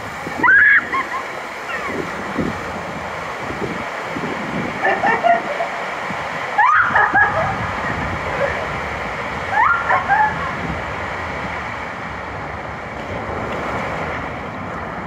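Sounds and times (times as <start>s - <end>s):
water rushing down waterslide: 0.0s - 15.0s
riders screaming: 0.4s - 1.1s, 6.6s - 7.5s, 9.5s - 10.6s.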